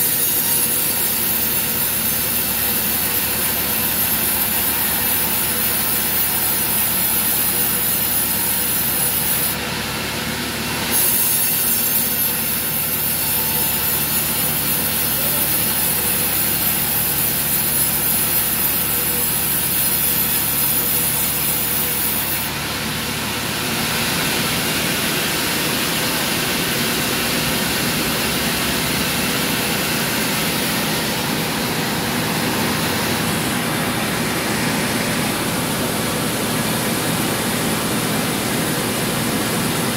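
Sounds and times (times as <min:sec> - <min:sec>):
band saw cutting log: 0:00.0 - 0:39.9.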